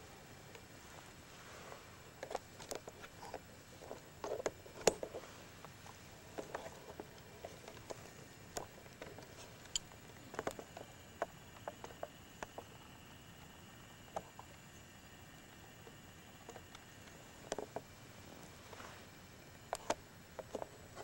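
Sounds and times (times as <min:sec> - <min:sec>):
handling clicks and rustles: 0:00.0 - 0:21.0.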